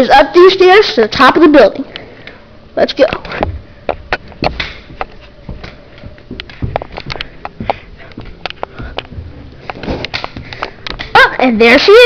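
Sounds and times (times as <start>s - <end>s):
footsteps on carpeted stairs: 3.1s - 11.4s.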